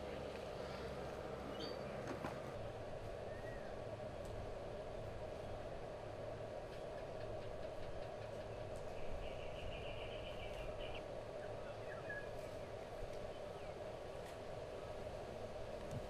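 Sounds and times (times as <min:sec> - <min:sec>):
low mechanical hum: 0:00.0 - 0:16.0
bird trilling and chirping: 0:01.5 - 0:02.0.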